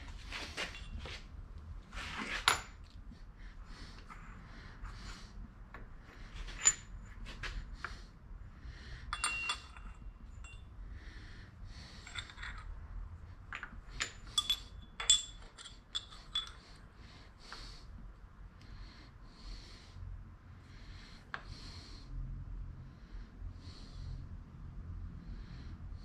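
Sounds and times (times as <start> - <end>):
metal clinks and taps: 0.5 - 1.2, 6.4 - 7.5, 9.1 - 10.7, 12.0 - 12.8, 13.4 - 16.8.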